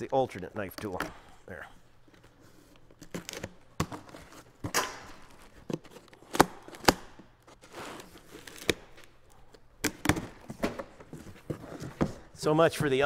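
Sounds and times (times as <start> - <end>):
wrapping tearing and crinkling: 2.0 - 9.8.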